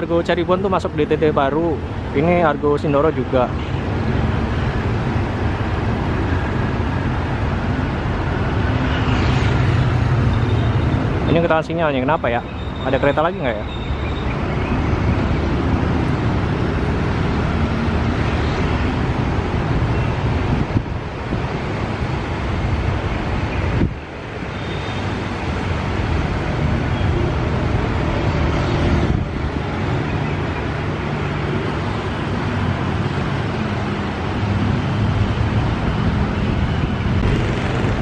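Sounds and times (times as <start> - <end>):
road traffic: 0.0 - 38.0
wind on microphone: 14.0 - 30.1, 33.9 - 38.0.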